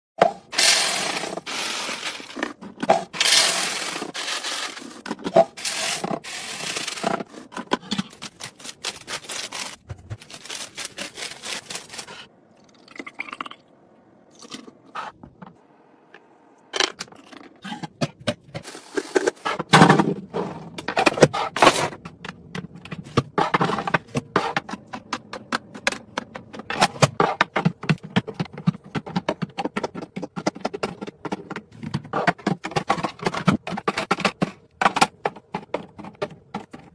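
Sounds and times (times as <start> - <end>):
dry cereal pouring into container: 0.6 - 2.4, 3.2 - 4.8.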